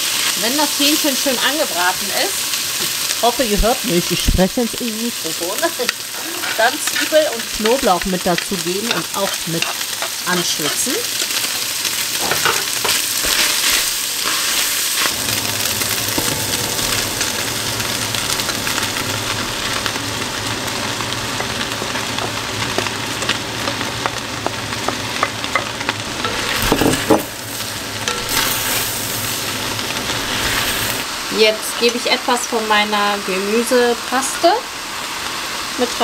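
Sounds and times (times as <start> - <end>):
chicken sizzling in a frying pan: 0.0 - 36.0
utensil scraping a pan: 6.0 - 8.0, 8.8 - 15.2, 26.2 - 29.4.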